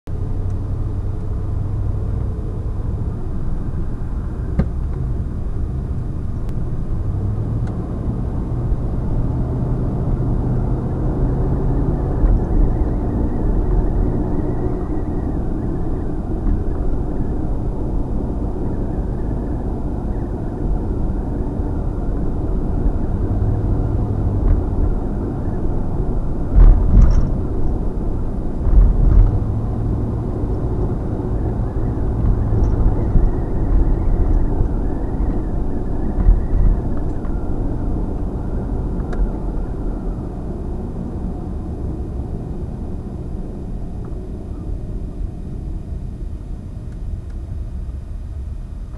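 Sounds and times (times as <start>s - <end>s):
engine hum: 0.0s - 48.9s
vehicle road rumble: 0.0s - 48.9s.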